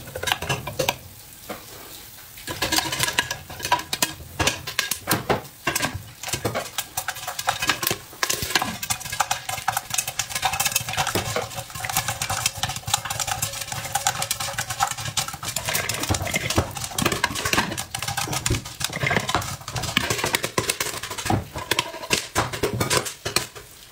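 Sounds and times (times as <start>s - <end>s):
popcorn popping in metal pot: 0.0s - 1.2s, 2.4s - 23.9s
metal lid clanking: 13.6s - 23.6s.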